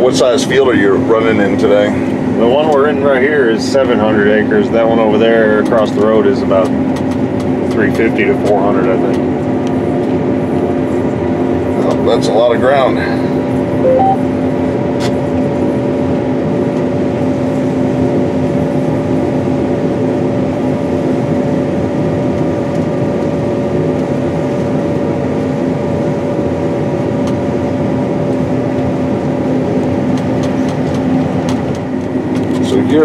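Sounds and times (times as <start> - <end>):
combine engine droning: 0.0 - 33.0
two-note beep: 13.8 - 14.2.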